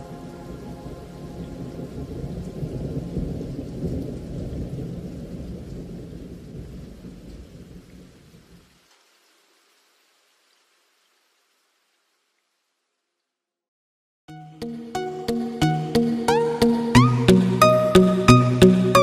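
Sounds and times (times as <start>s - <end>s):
deep thunder-like rumble: 1.4s - 7.9s.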